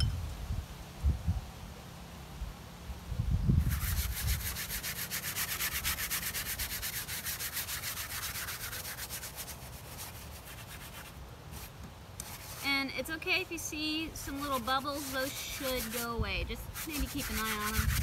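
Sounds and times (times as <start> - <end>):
brush scrubbing on canvas: 3.6 - 12.8, 13.8 - 18.0.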